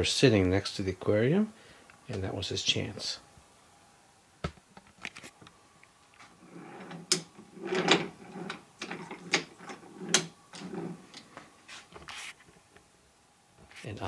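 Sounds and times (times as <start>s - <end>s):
wooden toy train wheels rolling: 6.2s - 11.3s.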